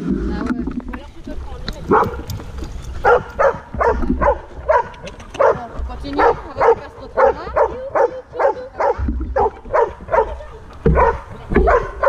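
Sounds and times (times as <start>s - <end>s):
dog barking in high yelps: 3.0s - 5.6s, 6.2s - 12.0s.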